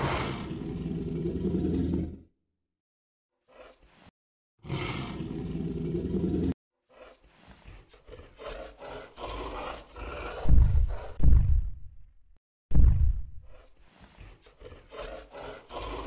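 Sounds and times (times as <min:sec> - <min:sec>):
dinosaur roars: 0:00.0 - 0:02.3, 0:04.6 - 0:11.2, 0:13.4 - 0:16.0.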